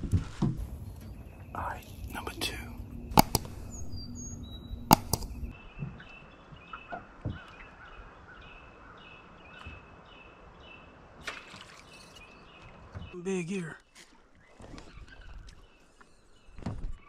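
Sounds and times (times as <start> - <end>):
outdoor ambience: 0.0 - 17.0
bird chirping: 0.6 - 11.0
sharp knocks: 3.1 - 3.8, 4.8 - 5.5.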